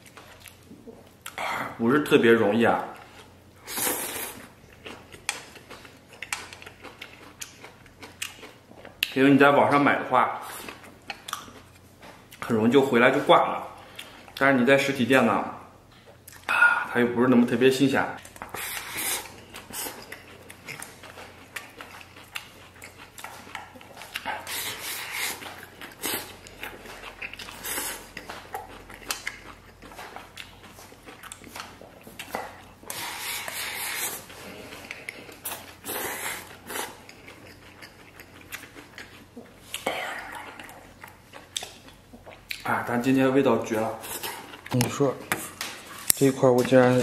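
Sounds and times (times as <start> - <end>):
chewing and wet mouth sounds: 2.8 - 9.3, 10.0 - 12.5, 13.1 - 14.5, 15.9 - 16.9, 18.2 - 46.3.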